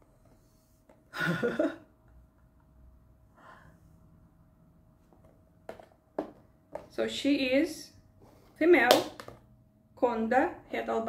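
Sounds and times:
person breathing softly: 3.3s - 4.1s.

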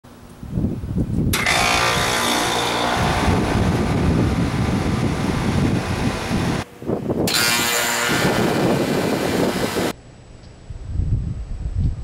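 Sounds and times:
air conditioner fan whoosh: 0.1s - 7.4s, 8.0s - 10.0s
compressor hum: 0.1s - 11.0s.

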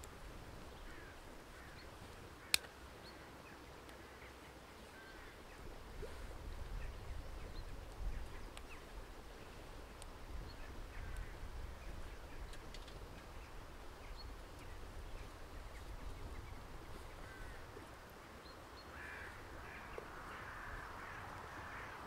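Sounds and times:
birds calling: 0.6s - 22.0s.

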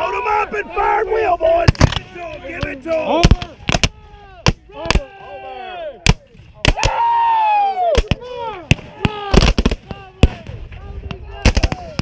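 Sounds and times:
men yelling falling cries: 0.0s - 6.0s
musket shots: 1.6s - 2.1s, 3.0s - 5.1s.

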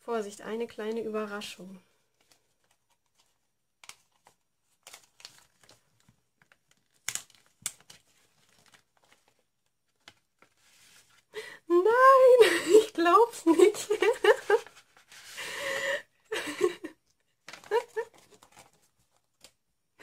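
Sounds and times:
paper envelope crinkling: 2.2s - 11.3s, 13.6s - 15.5s, 17.4s - 19.6s.

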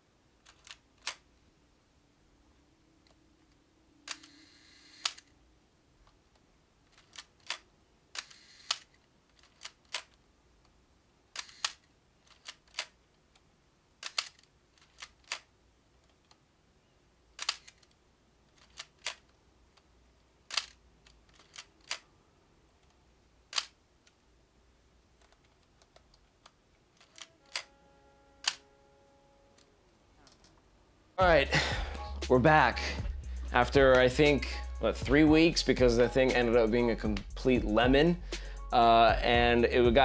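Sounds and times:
camera shutter clicks: 0.5s - 1.2s, 4.1s - 5.3s, 6.9s - 10.2s, 11.3s - 13.0s, 14.0s - 15.5s, 17.4s - 17.9s, 18.6s - 19.2s, 20.5s - 22.0s, 27.0s - 27.7s, 28.4s - 28.6s
shutter speed dial turning: 4.1s - 5.3s, 8.2s - 10.2s.

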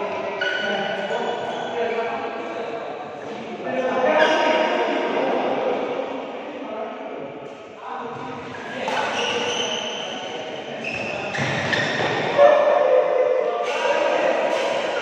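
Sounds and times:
players' voices: 0.0s - 15.0s
shoes squeaking on court: 0.4s - 2.0s, 8.1s - 12.4s
racket hitting shuttlecock: 8.8s - 9.5s, 13.6s - 15.0s.

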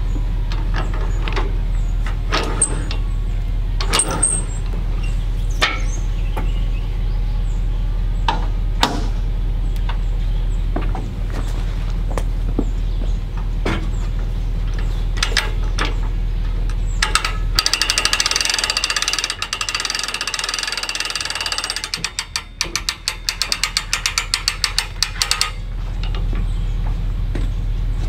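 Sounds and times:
winch ratchet clicking: 14.7s - 26.4s.

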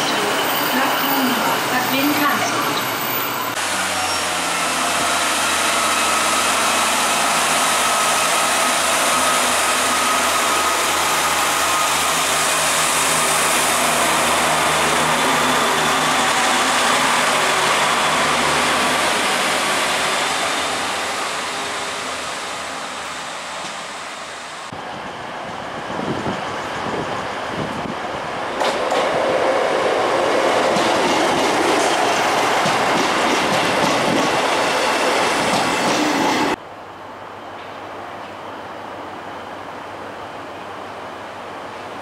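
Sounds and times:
train rumble and hiss: 0.0s - 42.0s.

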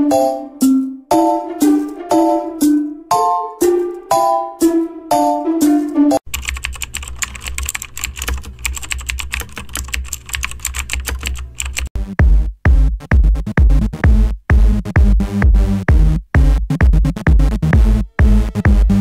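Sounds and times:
melodic music phrase: 0.0s - 6.2s
typing on computer keyboard: 6.2s - 11.9s
electronic beat with bass thumps: 12.0s - 19.0s.

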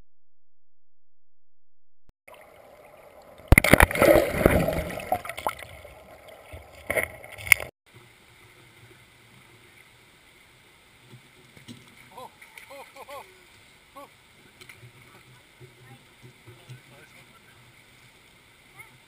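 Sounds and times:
water rushing and bubbling: 2.3s - 10.6s
stream flowing: 2.3s - 19.0s.

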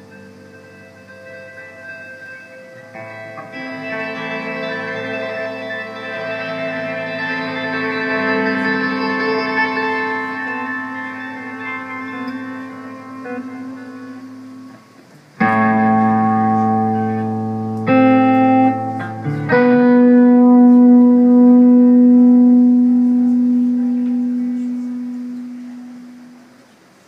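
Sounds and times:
electric guitar chords: 0.0s - 26.8s.

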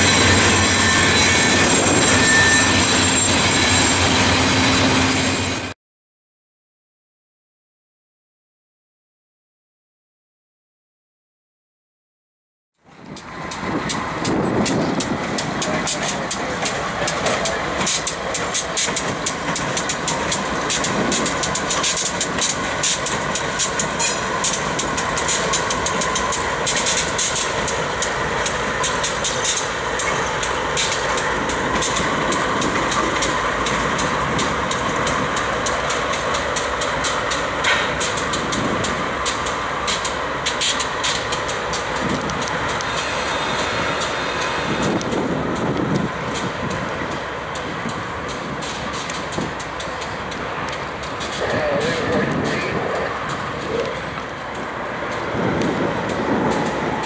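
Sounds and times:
locomotive engine rumble: 12.8s - 57.0s
dense high crackle of clicks: 48.3s - 51.5s.

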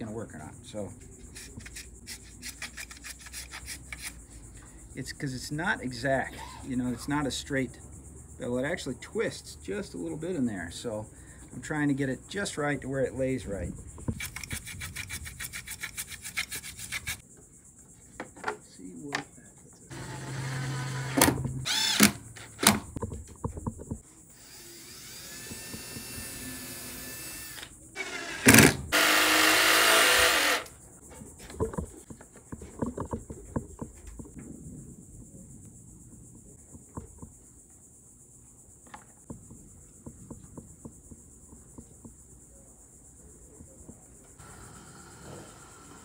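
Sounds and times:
cordless drill on wood: 19.9s - 22.2s, 24.3s - 30.7s, 44.4s - 46.0s.

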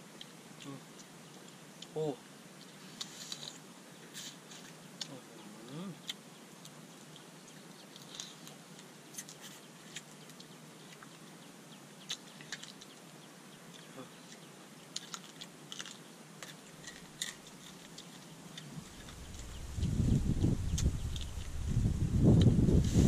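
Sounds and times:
faint steady hiss: 0.0s - 23.0s
people chewing and lip smacking: 2.6s - 11.3s, 12.0s - 21.6s.

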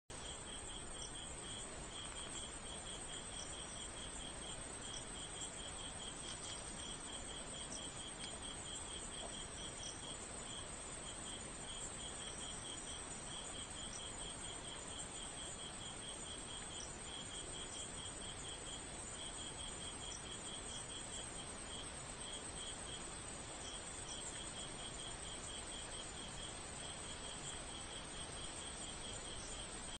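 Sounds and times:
crickets chirping: 0.1s - 30.0s
high insect trill: 0.2s - 30.0s.

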